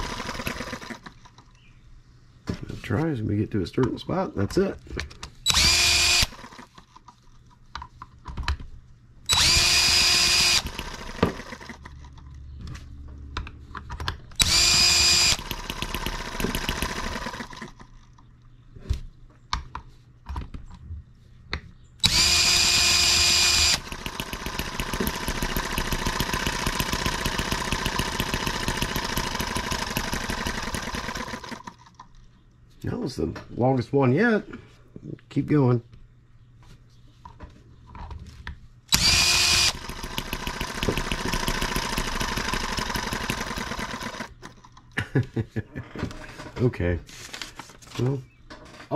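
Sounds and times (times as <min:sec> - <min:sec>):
cordless drill whining: 0:00.0 - 0:01.1, 0:05.5 - 0:06.7, 0:09.3 - 0:11.8, 0:14.4 - 0:17.7, 0:22.0 - 0:31.6, 0:38.9 - 0:44.5
model engine running: 0:00.0 - 0:01.1, 0:09.3 - 0:11.8, 0:14.4 - 0:17.8, 0:22.0 - 0:31.7, 0:38.9 - 0:44.4.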